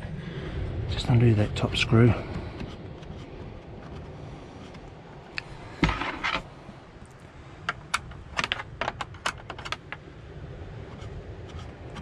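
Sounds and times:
spanner handling clatter: 7.7 - 10.0.

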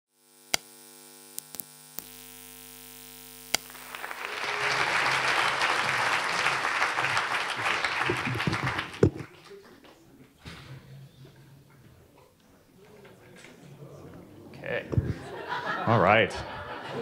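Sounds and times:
audience applause: 3.7 - 9.8.

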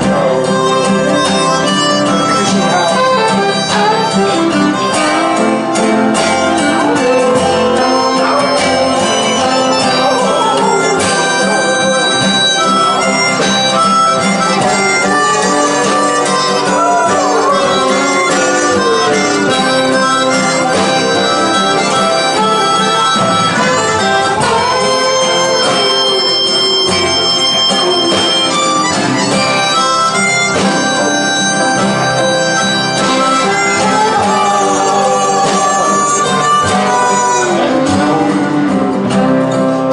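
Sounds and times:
acoustic guitar: 0.0 - 39.9
harmonica bending notes: 0.0 - 39.9
upright bass: 0.0 - 39.9.

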